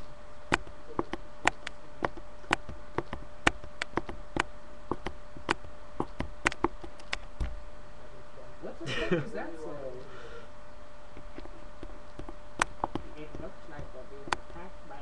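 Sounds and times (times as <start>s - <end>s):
faint steady hum: 0.0s - 15.0s
computer mouse clicking: 0.5s - 7.5s.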